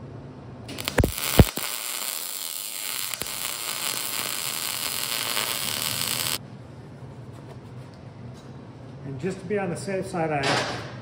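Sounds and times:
welding crackling hiss: 0:00.7 - 0:06.4.

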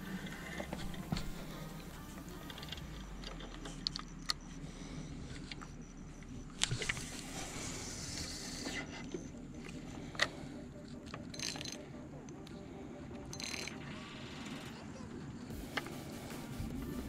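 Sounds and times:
fishing reel clicks: 0:11.3 - 0:11.8, 0:13.3 - 0:14.7.

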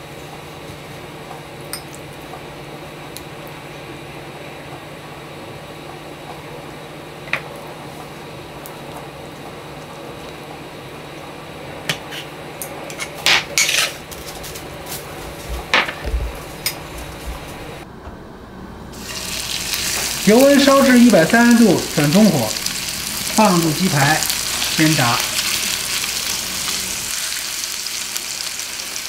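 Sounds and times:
steady low hum: 0:14.0 - 0:27.2.

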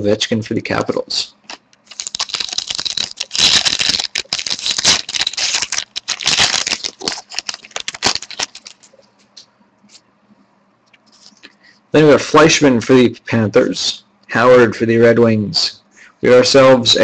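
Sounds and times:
foil wrapper crinkling and tearing: 0:01.5 - 0:08.9.

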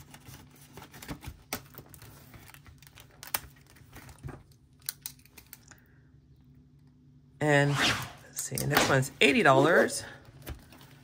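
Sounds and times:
paper rustling and crinkling: 0:00.0 - 0:04.6.

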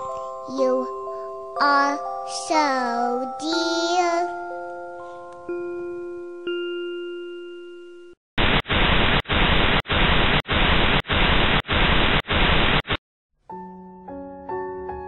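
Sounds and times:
soft piano music: 0:00.0 - 0:08.2, 0:13.5 - 0:15.0
tv static hiss: 0:08.4 - 0:13.0.

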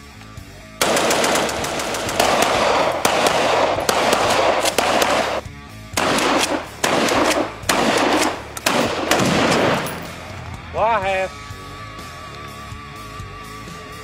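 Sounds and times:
background music: 0:00.0 - 0:14.0
shotgun gunshots: 0:00.8 - 0:10.3
rifle gunshots: 0:00.8 - 0:10.4.

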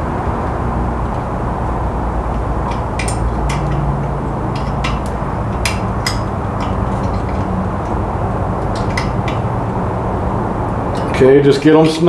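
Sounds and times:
low background rumble: 0:00.0 - 0:12.0
allen key clicking on bolts: 0:02.3 - 0:08.0, 0:08.6 - 0:09.7, 0:10.7 - 0:11.2.

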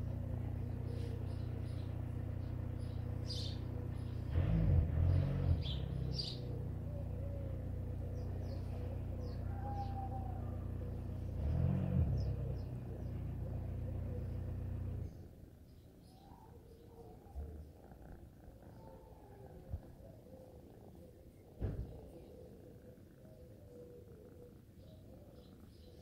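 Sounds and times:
kitten purring: 0:16.8 - 0:26.0.

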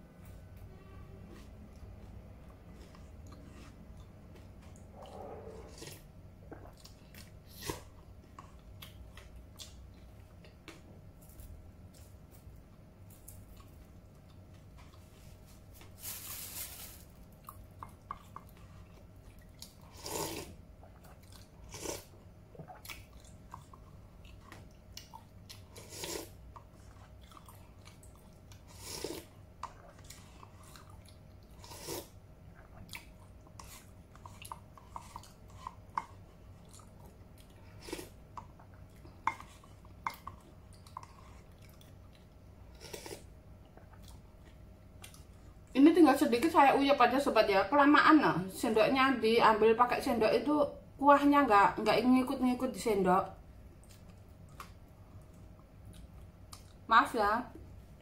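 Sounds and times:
soft chewing: 0:01.2 - 0:45.8, 0:53.6 - 0:56.9
slurp of soup: 0:19.9 - 0:20.6, 0:25.8 - 0:26.4, 0:28.7 - 0:29.3, 0:31.6 - 0:32.2, 0:42.7 - 0:43.3.

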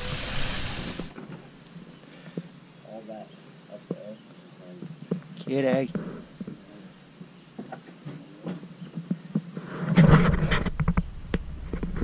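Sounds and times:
sharp clicks and knocks: 0:09.4 - 0:12.0.

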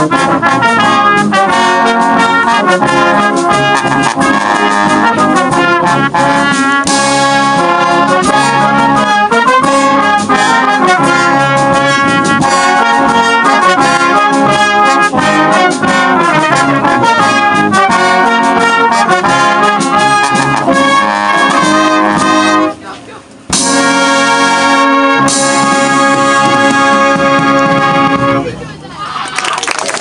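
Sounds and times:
brass band playing: 0:00.0 - 0:28.7.

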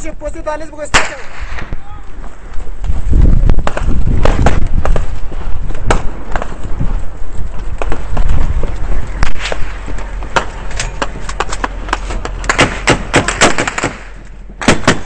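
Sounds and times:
low rumble of wind: 0:00.0 - 0:15.0
gunfire cracks: 0:00.9 - 0:01.7, 0:12.4 - 0:15.0.

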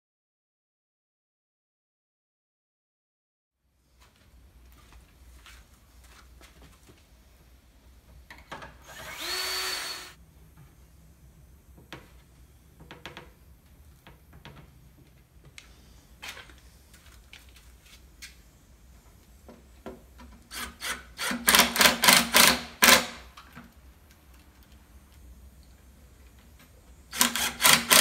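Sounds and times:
cordless drill driving screws: 0:08.8 - 0:10.2, 0:20.5 - 0:23.2, 0:27.1 - 0:28.0.

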